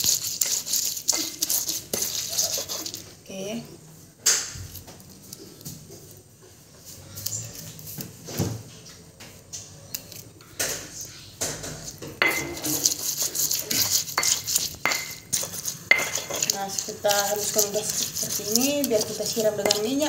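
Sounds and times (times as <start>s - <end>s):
stone pestle scraping mortar: 0.0s - 3.1s, 11.7s - 20.0s.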